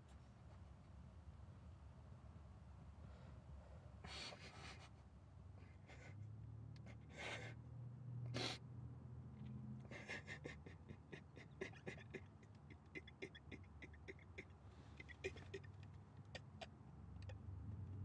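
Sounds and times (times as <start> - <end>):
man breathing heavily: 6.9 - 7.6, 9.8 - 16.7
quick irregular ticks: 10.1 - 18.0.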